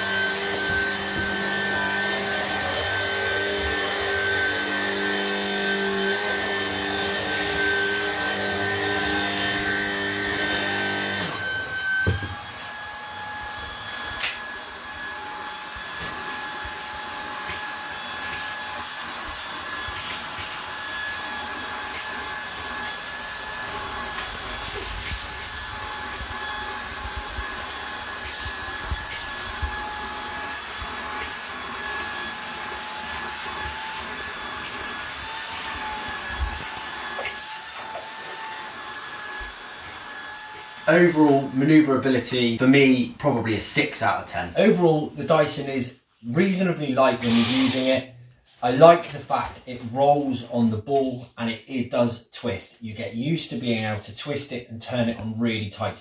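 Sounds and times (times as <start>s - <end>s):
vacuum cleaner whining: 0.0s - 45.7s, 46.4s - 50.4s
thump: 12.0s - 12.4s.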